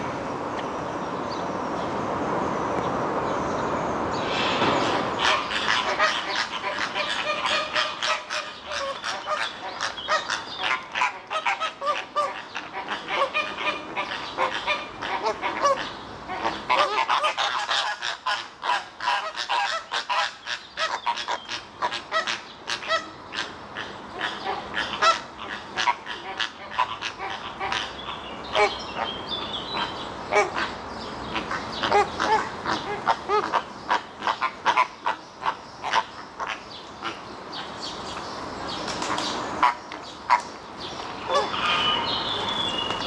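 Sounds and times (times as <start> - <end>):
flamingos honking: 4.9 - 29.1, 29.8 - 37.2, 39.6 - 40.4, 41.2 - 42.5.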